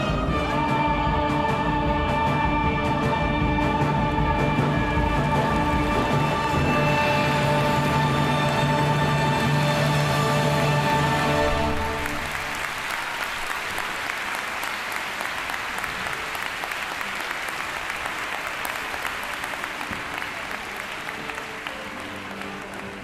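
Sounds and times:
audience applauding: 5.4 - 23.0.

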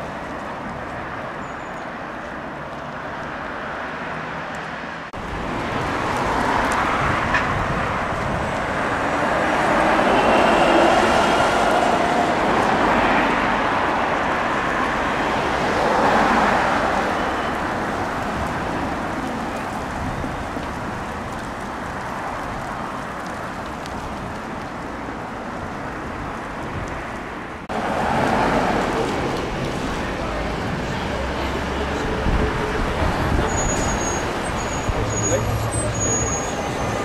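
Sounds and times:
bus passing close by: 0.0 - 24.0, 25.0 - 37.0
street traffic: 0.0 - 37.0.

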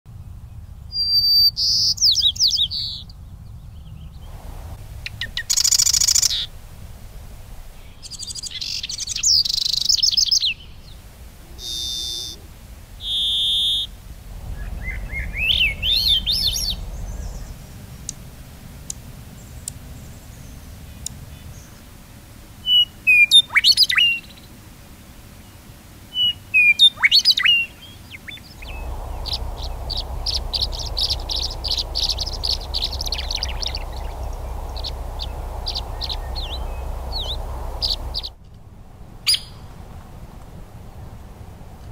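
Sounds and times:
swallow twittering: 4.3 - 18.4, 28.2 - 38.4.

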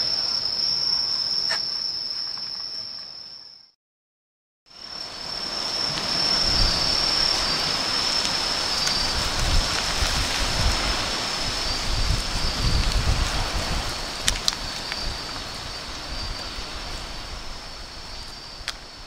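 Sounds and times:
wind buffeting microphone: 5.8 - 19.0.

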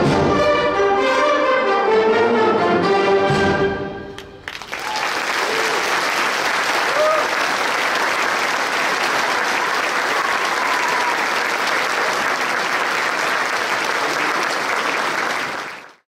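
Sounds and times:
crowd applauding: 4.2 - 16.0.

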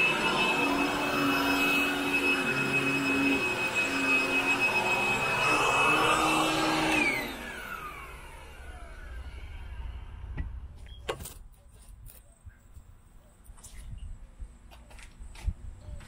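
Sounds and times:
vacuum cleaner running: 0.0 - 10.7.

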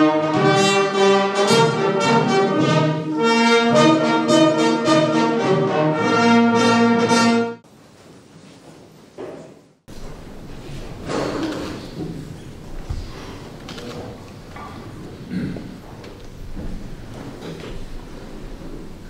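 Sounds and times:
slow brass music: 0.0 - 7.6.

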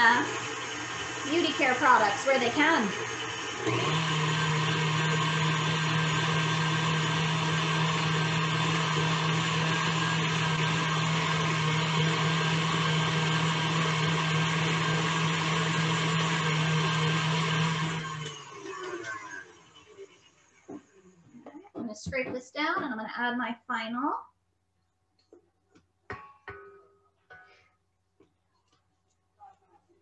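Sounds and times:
electric mixer motor running: 0.0 - 20.8.

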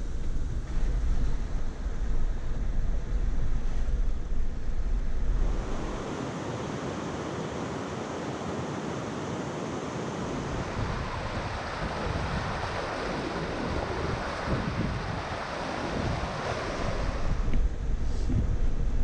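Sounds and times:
low rumble: 0.0 - 6.1, 17.0 - 19.0
wind buffeting microphone: 0.0 - 19.0
river water rushing: 5.4 - 17.5.

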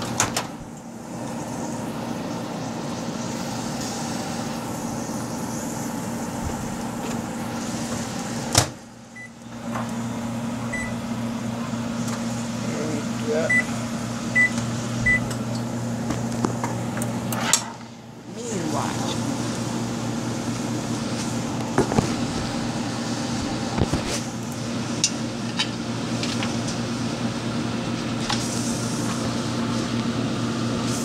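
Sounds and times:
microwave oven humming: 0.0 - 31.0
keypad beeps: 14.4 - 15.2.

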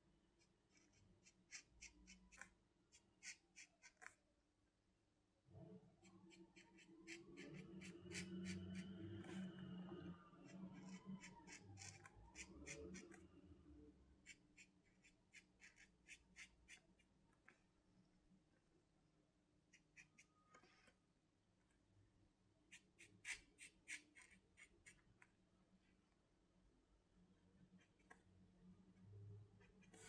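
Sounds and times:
pen scratching on paper: 0.4 - 4.2, 6.0 - 9.6, 10.5 - 13.2, 14.2 - 17.6, 19.7 - 21.0, 22.7 - 25.2, 27.7 - 28.2, 29.6 - 30.0.

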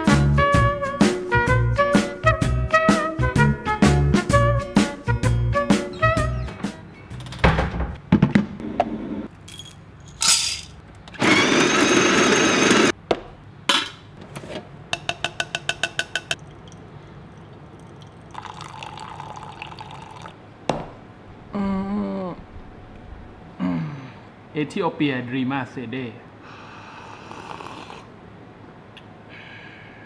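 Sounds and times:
liquid being poured: 16.4 - 20.4
cups and tools clinking: 17.4 - 20.3.

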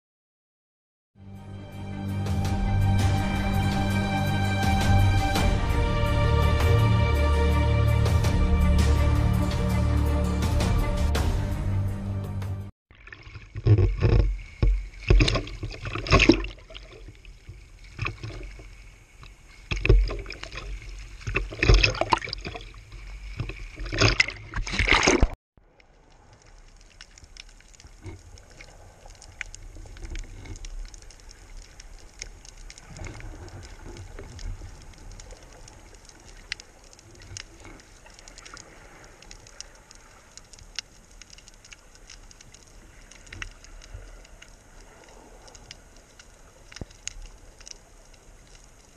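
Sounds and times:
sea water splashing: 12.9 - 48.9
faint crackling clicks: 13.2 - 24.8, 25.6 - 48.9.

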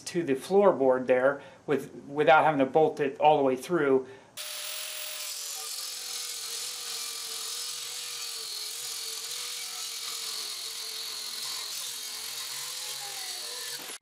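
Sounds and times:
angle grinder motor whine: 4.4 - 14.0.

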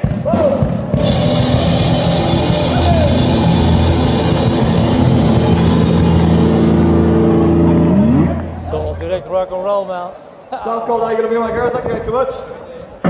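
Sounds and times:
amplified rock music: 0.9 - 8.7.

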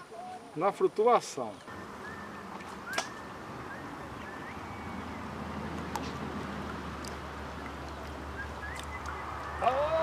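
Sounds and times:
faint rising bird chirps: 1.6 - 6.4, 7.6 - 10.0.

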